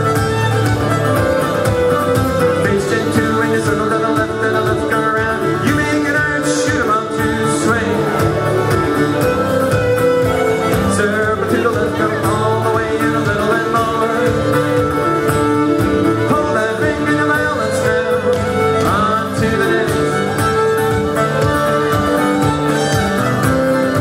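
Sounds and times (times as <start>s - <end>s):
fiddle playing dance tune: 0.0s - 24.0s
guitar accompaniment: 0.0s - 24.0s.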